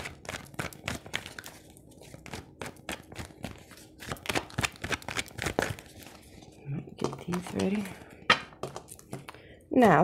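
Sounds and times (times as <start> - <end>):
cards being shuffled: 0.0 - 6.5.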